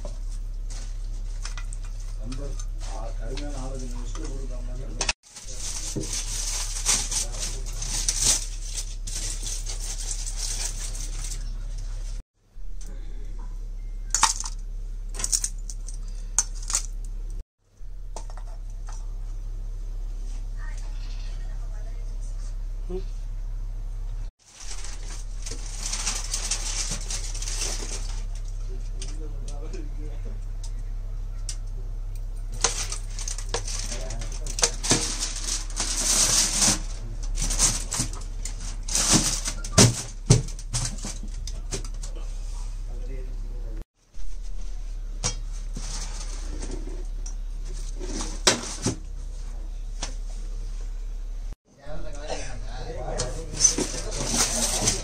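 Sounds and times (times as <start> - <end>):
steady low hum: 0.0 - 55.0
aluminium foil crinkling: 5.3 - 12.2, 24.5 - 29.6, 32.4 - 42.2, 53.2 - 55.0.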